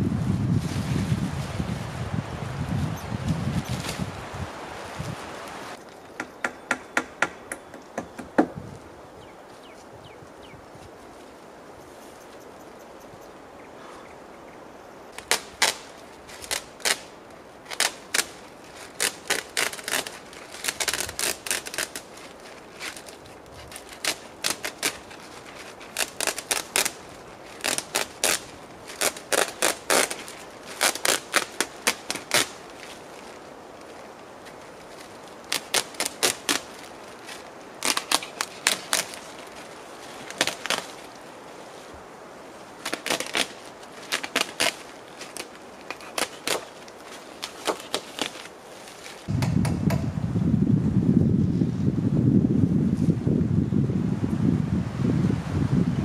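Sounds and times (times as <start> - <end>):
hammer tapping nails into wood: 6.2 - 8.5.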